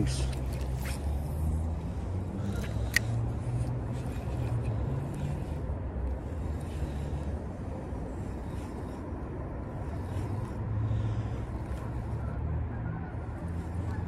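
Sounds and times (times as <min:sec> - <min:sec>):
low outdoor rumble: 0:00.0 - 0:14.0
fishing reel bail click: 0:02.4 - 0:03.2.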